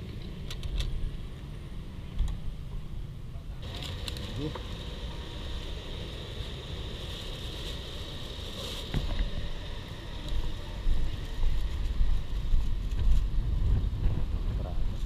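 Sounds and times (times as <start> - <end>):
traffic hum: 0.0 - 15.0
wind buffeting microphone: 7.8 - 15.0.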